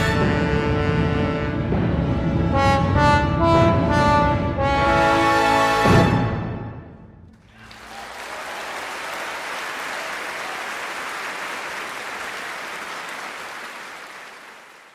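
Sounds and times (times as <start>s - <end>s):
audience applauding: 7.4s - 14.9s.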